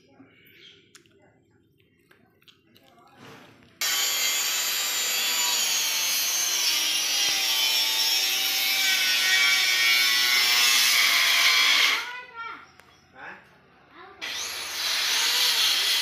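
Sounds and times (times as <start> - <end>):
power tool rasping wood: 3.8 - 12.1, 14.2 - 16.0.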